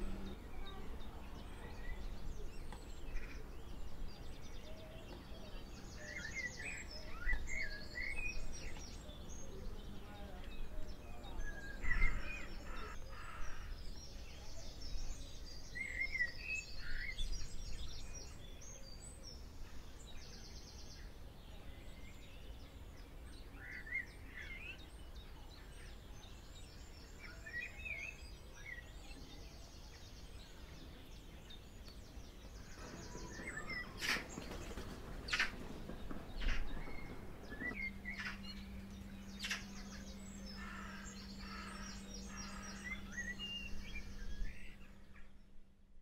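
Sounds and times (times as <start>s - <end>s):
low outdoor rumble: 0.0s - 5.7s, 32.0s - 45.1s
small birds chirping: 0.0s - 45.6s.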